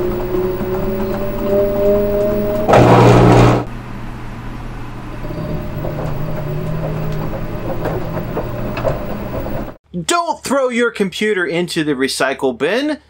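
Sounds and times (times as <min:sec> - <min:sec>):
low hum: 0:00.0 - 0:09.8
loud noisy burst: 0:02.7 - 0:03.7.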